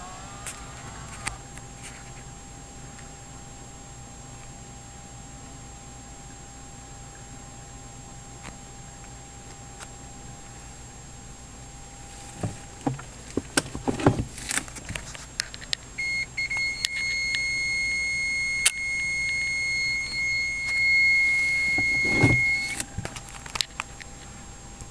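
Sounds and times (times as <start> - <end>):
high electronic warning beep: 16.0 - 22.8.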